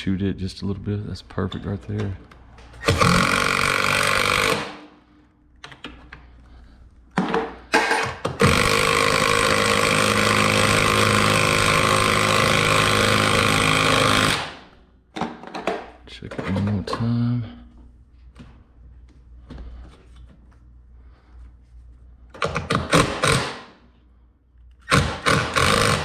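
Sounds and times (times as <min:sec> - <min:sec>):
impact driver driving fastener: 0:02.8 - 0:04.8, 0:08.2 - 0:14.6, 0:22.4 - 0:23.6, 0:24.8 - 0:26.0.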